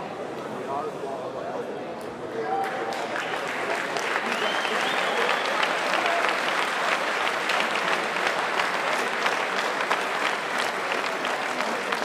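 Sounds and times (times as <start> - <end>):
crowd applauding: 2.5 - 12.0.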